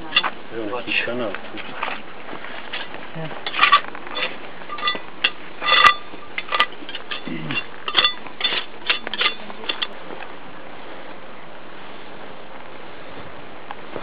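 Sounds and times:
metal tool scraping stone: 0:00.1 - 0:00.3, 0:02.7 - 0:10.0.

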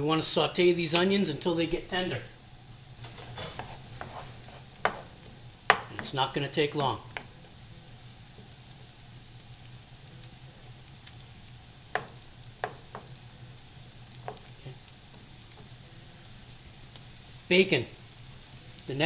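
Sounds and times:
onions sizzling in a pan: 0:00.0 - 0:19.0
wooden spoon knocking on pan: 0:04.8 - 0:06.2, 0:07.1 - 0:07.3, 0:11.9 - 0:13.2, 0:14.2 - 0:14.5.

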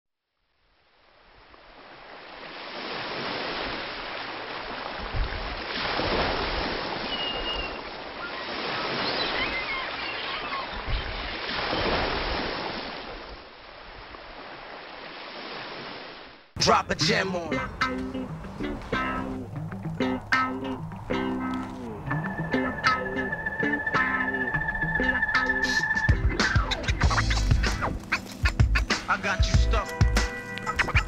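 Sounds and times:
small waves breaking on beach: 0:00.9 - 0:16.6.

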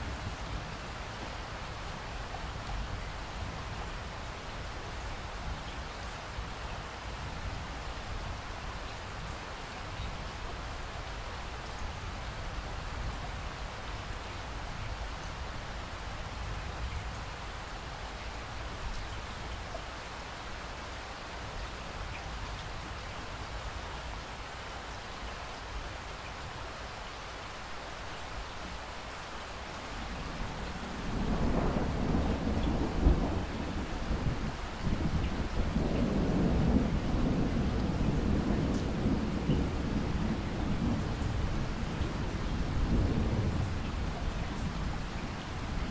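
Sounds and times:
steady rain falling: 0:00.0 - 0:45.9
thunder rumbling: 0:30.4 - 0:45.9.

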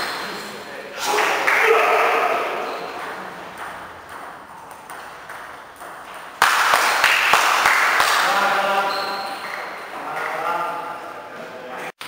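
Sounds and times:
table tennis balls clicking: 0:02.8 - 0:08.2.

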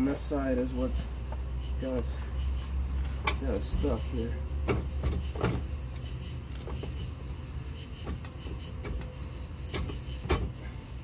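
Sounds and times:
knocks and clunks on pump housing: 0:03.0 - 0:07.2, 0:07.9 - 0:10.8.

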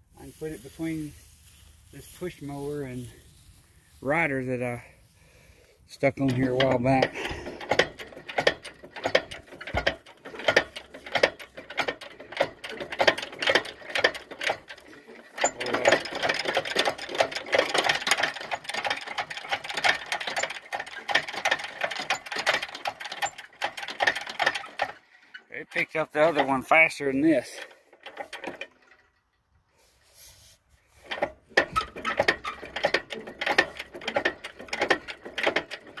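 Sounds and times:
hydraulic pump clicking and clanking: 0:06.0 - 0:29.4, 0:30.9 - 0:36.0.

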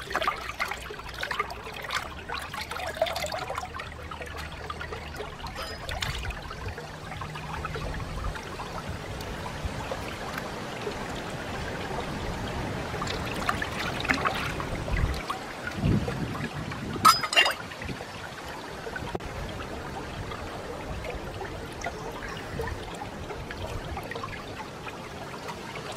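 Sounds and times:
stream trickling over rocks: 0:00.0 - 0:25.9
small splashes in water: 0:12.8 - 0:19.2.

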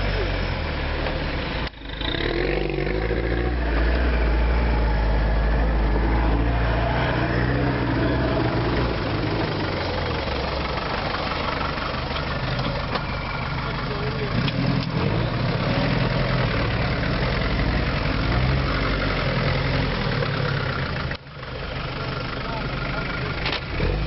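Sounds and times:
car engine running at low revs: 0:00.0 - 0:24.0.

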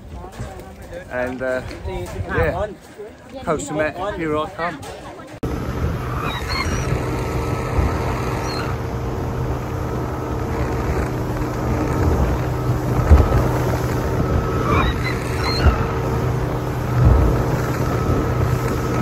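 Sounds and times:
speedboat engine running: 0:05.4 - 0:19.0
wind rushing: 0:05.4 - 0:19.0
water rushing past: 0:05.7 - 0:19.0
hull knocking on waves: 0:06.8 - 0:19.0.

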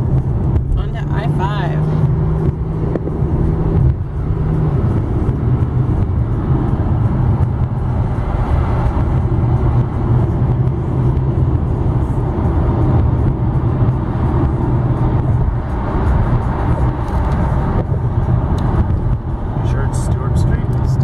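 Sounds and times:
road and engine rumble: 0:00.0 - 0:21.0.

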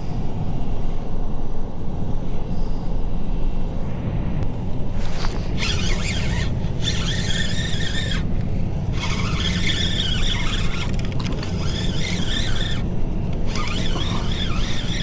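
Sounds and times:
fishing reel squealing: 0:05.1 - 0:15.0.

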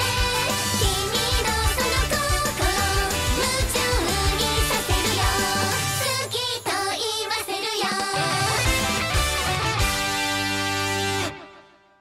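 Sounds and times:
female voices singing: 0:00.0 - 0:08.6
pop band backing: 0:00.0 - 0:11.6.

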